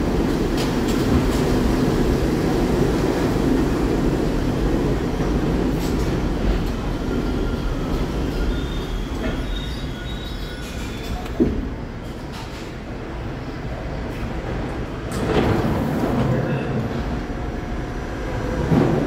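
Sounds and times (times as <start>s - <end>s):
subway train wheels rumbling: 0.0s - 19.0s
high brake squeal: 7.2s - 11.3s.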